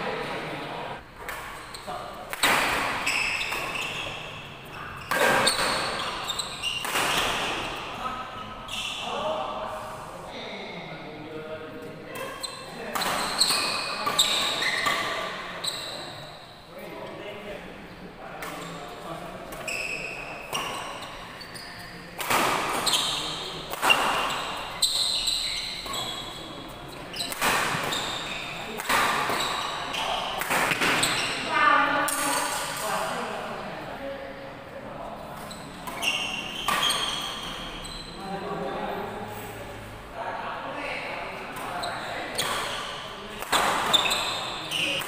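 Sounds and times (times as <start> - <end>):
shoes squeaking on court: 1.5 - 7.8, 8.6 - 9.1, 12.2 - 16.4, 19.5 - 31.5, 35.4 - 38.2, 41.5 - 45.0
rackets hitting shuttlecock: 2.2 - 4.2, 5.1 - 7.8, 22.2 - 26.1, 27.2 - 31.4, 35.4 - 37.6, 41.5 - 45.0.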